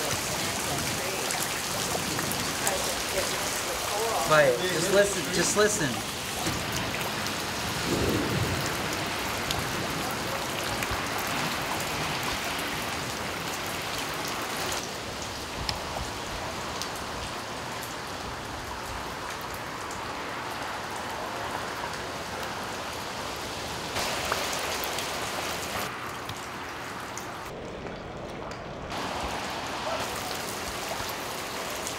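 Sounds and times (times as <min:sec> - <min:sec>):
heavy rain: 0:00.0 - 0:31.9
thunder rumble: 0:06.4 - 0:12.9.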